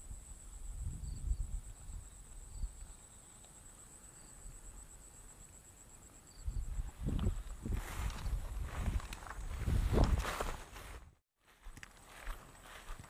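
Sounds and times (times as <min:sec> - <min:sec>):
high-pitched insect trill: 0:00.0 - 0:09.8.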